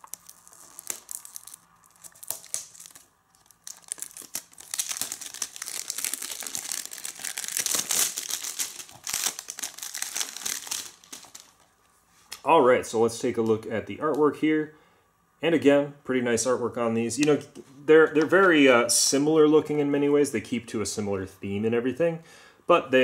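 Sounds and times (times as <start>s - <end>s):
plastic shrink wrap crinkling: 0.0s - 11.8s.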